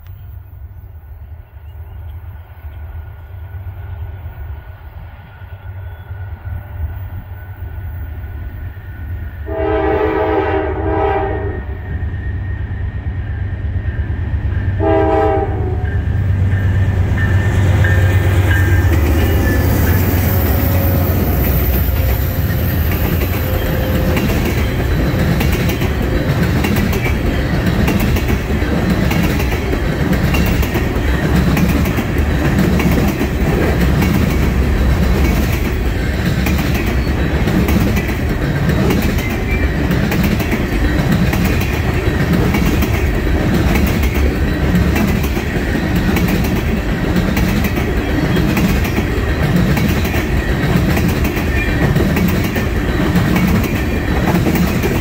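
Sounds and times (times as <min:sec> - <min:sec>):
train wheels on rails: 0:00.0 - 0:55.0
train air horn blasts: 0:09.4 - 0:12.0, 0:14.7 - 0:16.2, 0:19.3 - 0:24.8
diesel locomotive rumble: 0:12.0 - 0:55.0
wheels clicking over rail joints: 0:21.2 - 0:55.0.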